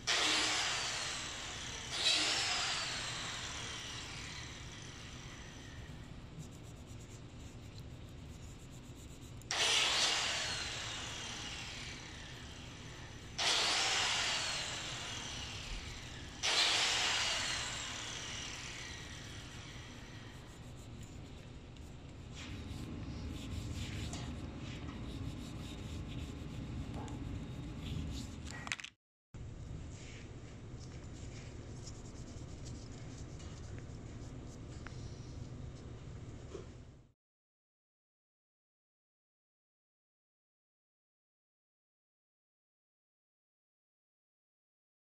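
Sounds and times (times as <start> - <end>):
power tool whine spinning down: 0.1 - 5.9, 9.5 - 20.4.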